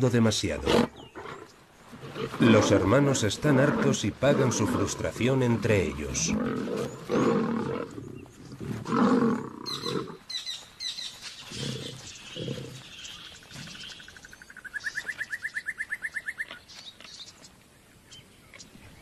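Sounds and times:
lions snarling and growling: 0.5s - 10.2s, 11.4s - 14.2s.

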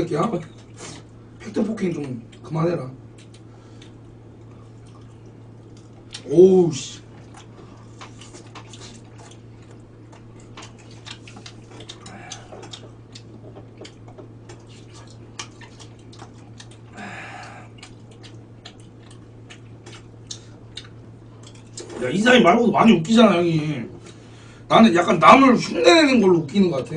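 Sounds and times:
low electrical hum: 0.0s - 26.9s
chewing: 3.1s - 6.3s, 7.0s - 22.0s.

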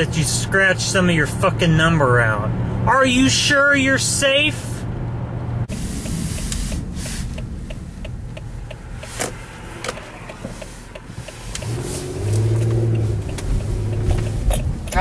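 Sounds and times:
low engine hum: 4.6s - 15.0s
car cabin noise: 5.6s - 15.0s
turn signal ticking: 5.7s - 15.0s.

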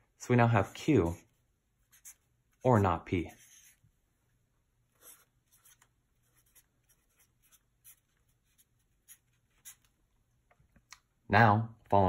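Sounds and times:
marker writing on paper: 1.8s - 2.3s, 3.3s - 3.8s, 5.0s - 10.0s.

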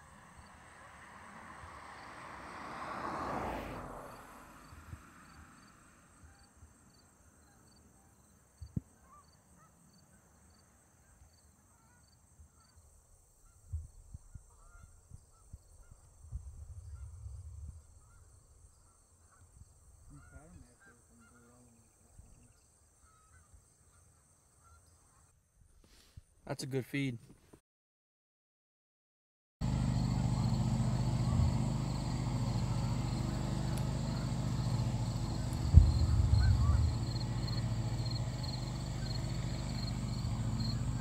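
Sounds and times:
distant geese honking: 17.9s - 22.0s, 29.6s - 41.0s
low thumps on microphone: 35.5s - 38.7s.

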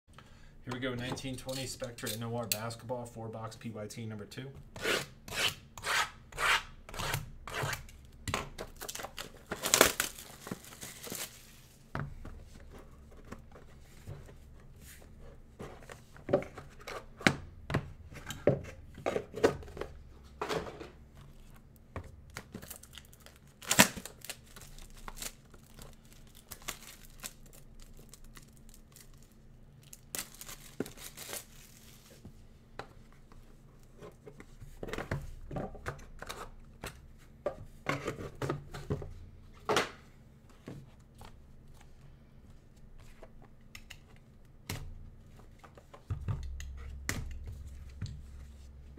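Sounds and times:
plastic shrink-wrap ripping: 8.8s - 11.6s, 22.6s - 32.0s.

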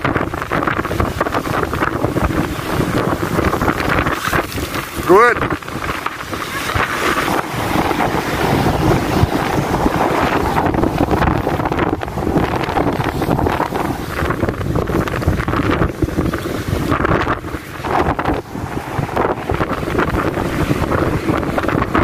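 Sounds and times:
waves breaking on rocky shore: 0.0s - 22.0s
wind buffeting microphone: 0.0s - 22.0s.

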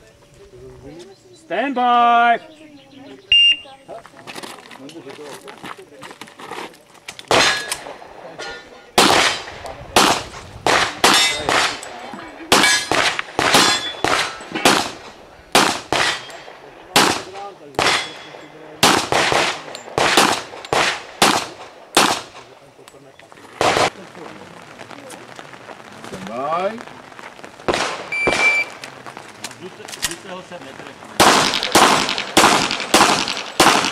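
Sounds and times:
handgun shots with echo: 7.3s - 7.9s, 12.5s - 15.0s, 15.6s - 16.4s, 17.0s - 22.4s, 31.2s - 33.9s.

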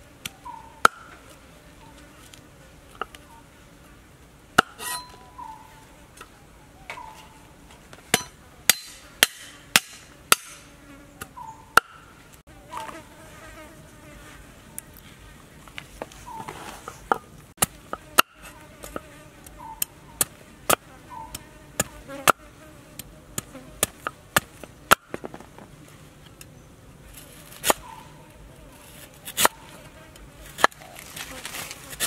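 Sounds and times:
insects buzzing: 17.8s - 24.7s.

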